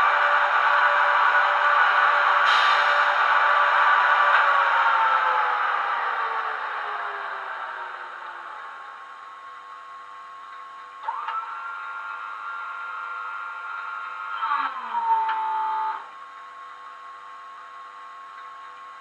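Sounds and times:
electric locomotive hum: 0:00.0 - 0:19.0.

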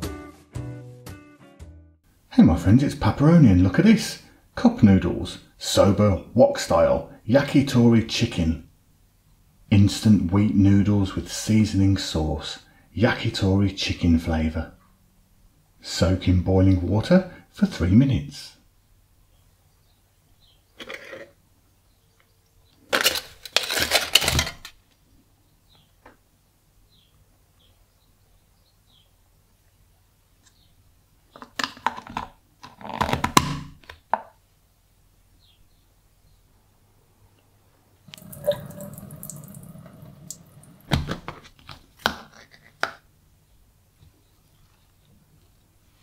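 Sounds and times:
foil lid peeling with crackle: 0:22.9 - 0:24.6
water pouring into a sink: 0:38.1 - 0:41.0.

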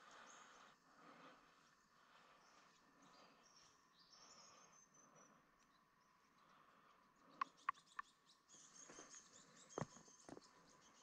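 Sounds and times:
insect drone: 0:00.0 - 0:07.4.

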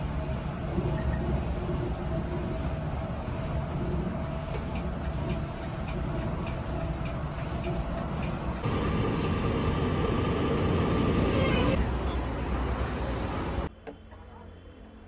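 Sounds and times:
bus engine and road noise: 0:00.0 - 0:13.7.

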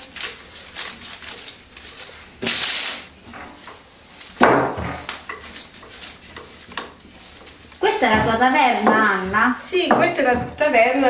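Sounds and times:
rolling pin rolling dough: 0:00.0 - 0:11.0.

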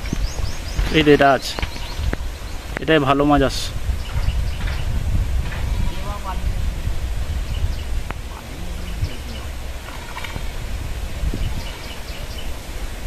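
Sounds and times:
low rumble: 0:03.7 - 0:12.9.

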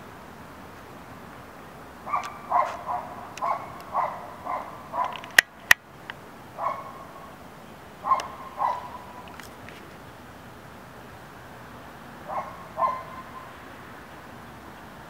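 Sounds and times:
sharp clicks: 0:05.0 - 0:06.2.

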